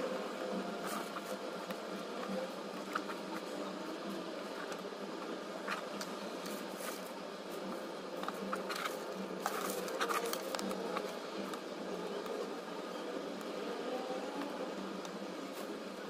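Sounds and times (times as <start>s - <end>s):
low background hum: 0.0s - 16.0s
plastic rustling: 4.3s - 11.5s.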